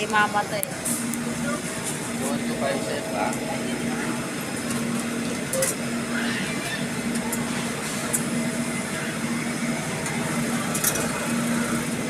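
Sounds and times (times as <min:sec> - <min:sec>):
ice cream machine humming: 0:00.0 - 0:12.0.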